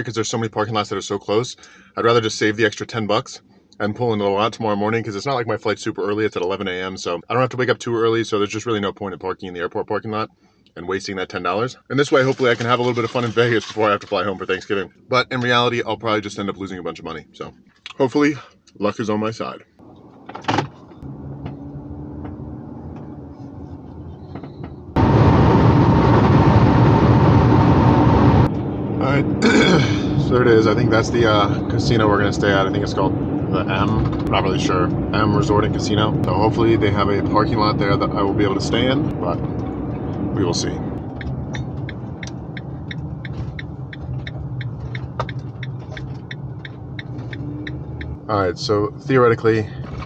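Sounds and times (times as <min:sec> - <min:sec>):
van engine hum: 0:00.0 - 0:50.0
road and wind noise: 0:19.8 - 0:50.0
turn signal ticking: 0:41.0 - 0:48.3.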